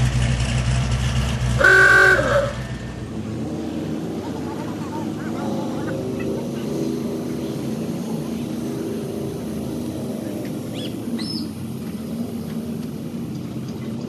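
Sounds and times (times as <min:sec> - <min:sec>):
vehicle engines droning: 0:00.0 - 0:14.0
bird chirps: 0:10.4 - 0:11.6.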